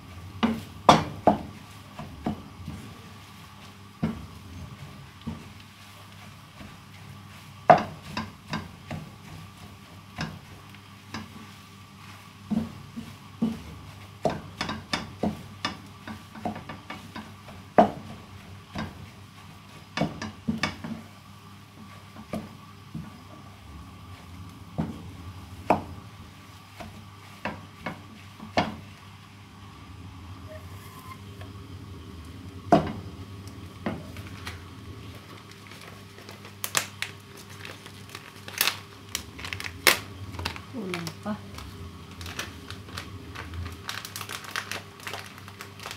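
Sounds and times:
faint hum: 28.6s - 45.9s.

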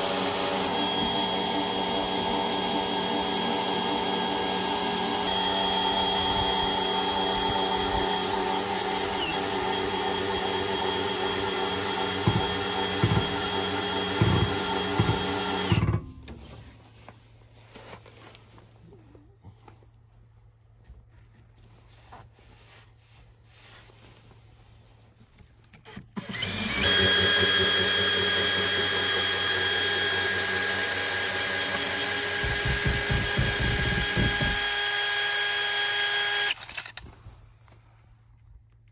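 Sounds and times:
cordless drill whining: 0.0s - 16.1s, 25.6s - 37.2s.

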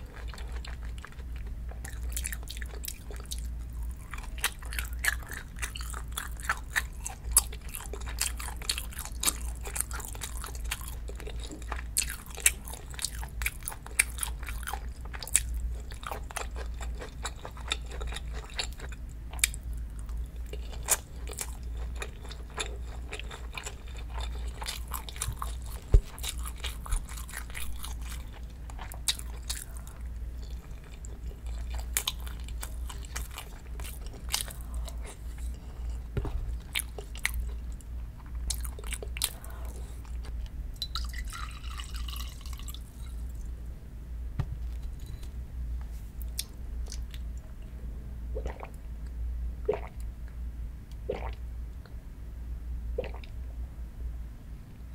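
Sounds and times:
person chewing food: 0.0s - 43.5s
steady low hum: 0.0s - 54.9s.

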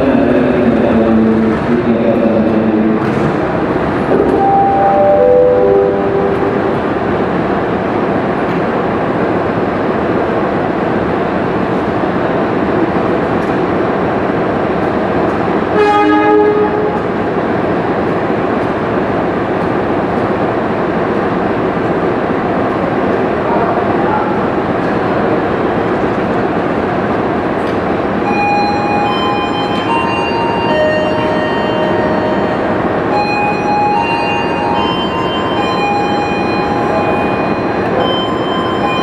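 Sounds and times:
locomotive rumbling: 0.0s - 39.0s
locomotive horn blast: 15.7s - 17.1s.

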